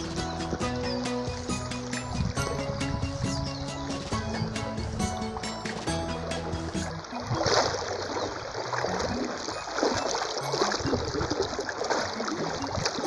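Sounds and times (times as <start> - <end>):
background music: 0.0 - 7.2
river water rushing: 3.6 - 13.0.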